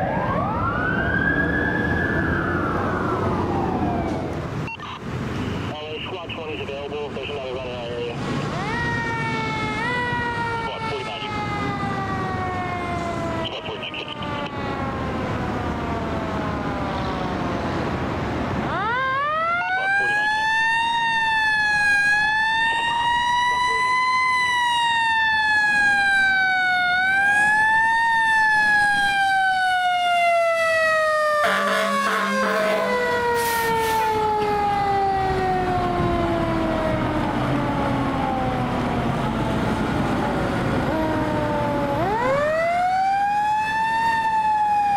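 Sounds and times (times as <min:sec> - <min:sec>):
fire truck siren: 0:00.0 - 0:44.9
truck engine: 0:01.4 - 0:44.9
truck horn blast: 0:31.4 - 0:34.1.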